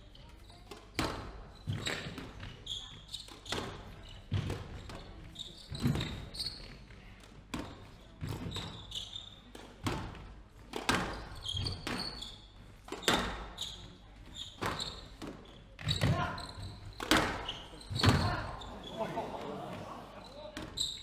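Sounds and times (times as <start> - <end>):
shoes squeaking on wooden floor: 0.2 - 10.3, 10.9 - 21.0
squash ball cracks off rackets: 17.0 - 18.2.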